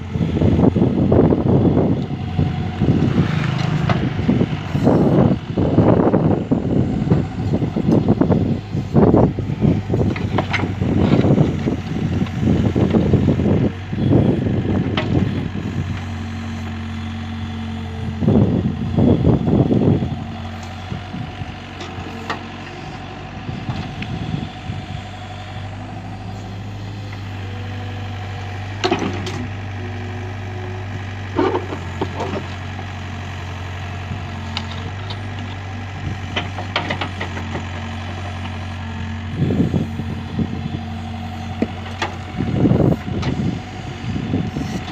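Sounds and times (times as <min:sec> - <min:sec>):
excavator diesel engine running: 0:00.0 - 0:44.9
soil and stones scraping: 0:25.7 - 0:32.7, 0:39.3 - 0:44.9.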